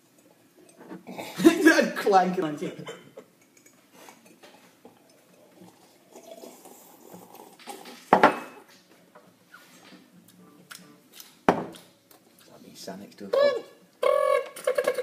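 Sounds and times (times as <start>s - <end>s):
mugs clinking: 7.3s - 8.8s
mug clunking on hard surface: 8.1s - 8.6s.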